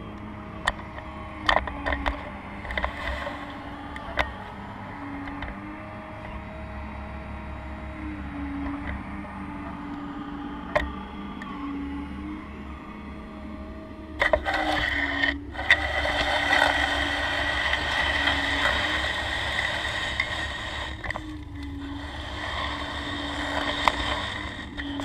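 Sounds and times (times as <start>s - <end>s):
hydraulic pump humming: 0.0s - 25.0s
bucket scraping sandy soil: 21.8s - 25.0s.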